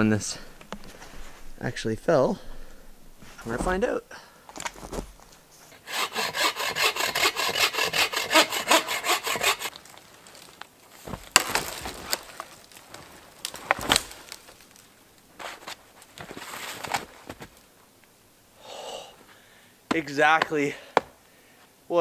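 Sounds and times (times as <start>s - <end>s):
hand saw cutting log: 5.7s - 9.7s
wood cracks and knocks: 9.7s - 14.9s.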